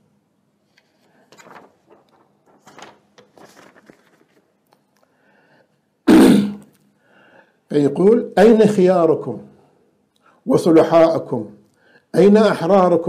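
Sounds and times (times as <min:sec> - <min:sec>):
faint rustles and clicks: 0:00.6 - 0:05.2
man coughing: 0:06.1 - 0:06.6.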